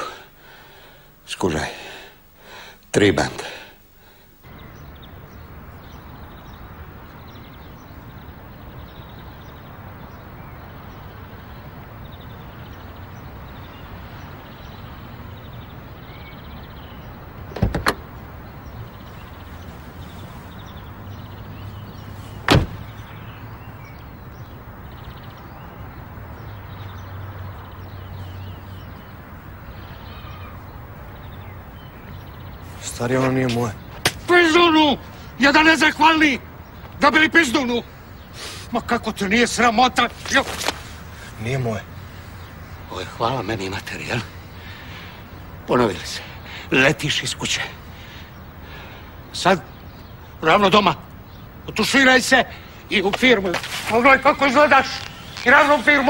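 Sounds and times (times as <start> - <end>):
car door latch clicking: 17.5 - 18.1, 22.5 - 22.8
car door shutting: 17.5 - 18.1, 22.4 - 23.0.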